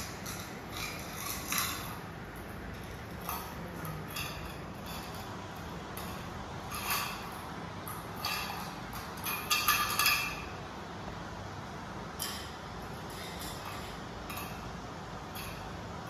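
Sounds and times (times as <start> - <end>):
metal bowls clinking on tiled floor: 0.0 - 10.6.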